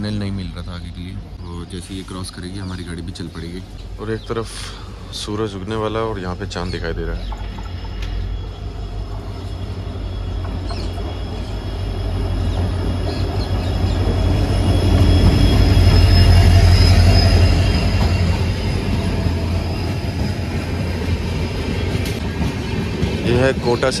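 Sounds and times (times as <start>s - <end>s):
locomotive deep rumble: 0.0s - 24.0s
wheel-on-rail noise: 0.0s - 24.0s
thin high whine: 5.5s - 22.2s.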